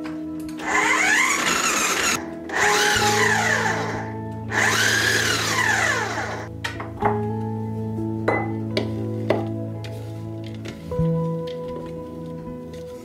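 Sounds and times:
food processor motor whining: 0:00.6 - 0:06.5.

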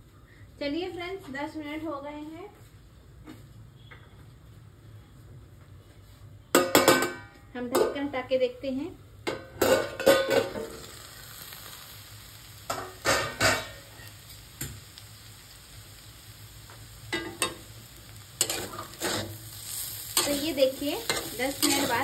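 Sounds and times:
metal lid clanging: 0:09.3 - 0:10.7
spatula clinking and scraping pan: 0:09.3 - 0:10.8, 0:12.7 - 0:14.1, 0:17.1 - 0:17.7, 0:18.4 - 0:22.0
food sizzling: 0:09.4 - 0:22.0.

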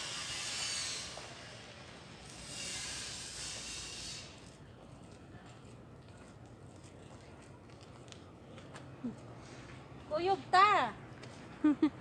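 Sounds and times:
footsteps on paved street: 0:01.0 - 0:02.0, 0:04.4 - 0:12.0.

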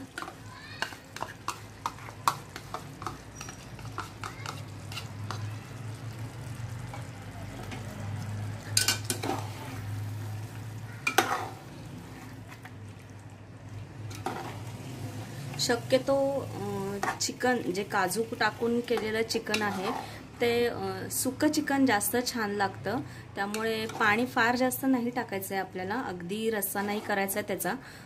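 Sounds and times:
spoon clanking on pot: 0:00.0 - 0:05.6, 0:08.7 - 0:09.5, 0:11.0 - 0:11.5
spoon scraping a bowl: 0:00.0 - 0:05.6, 0:08.8 - 0:10.0, 0:11.1 - 0:12.6, 0:14.1 - 0:14.7, 0:18.9 - 0:20.2, 0:23.6 - 0:24.3, 0:26.6 - 0:27.4.

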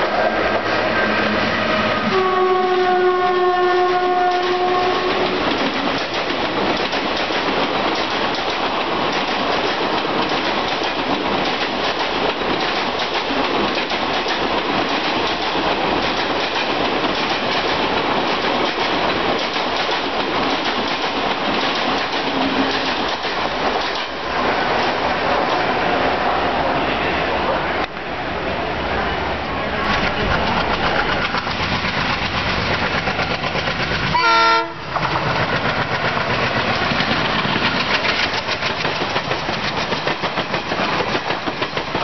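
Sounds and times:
train coaches clattering past: 0:00.0 - 0:42.0
train horn blasting: 0:01.8 - 0:05.3, 0:34.1 - 0:34.9.

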